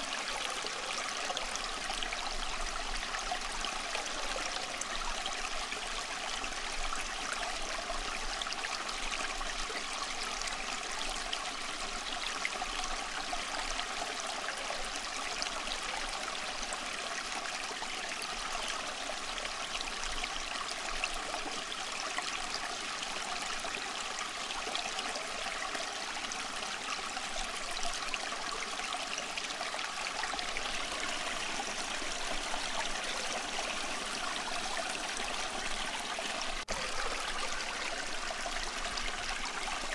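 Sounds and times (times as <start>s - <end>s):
rushing water: 0.0s - 39.9s.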